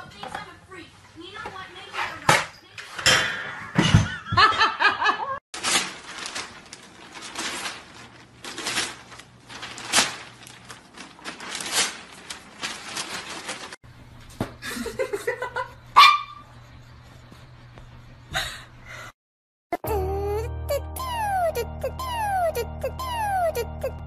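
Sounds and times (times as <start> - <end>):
newspaper pages rustling: 5.6 - 13.8
small dog whining: 19.8 - 24.0.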